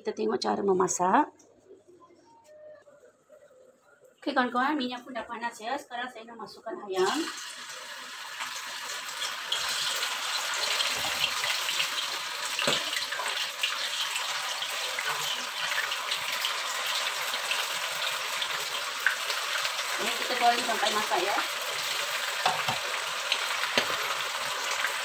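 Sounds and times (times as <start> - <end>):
chicken frying in hot oil: 7.0 - 25.0.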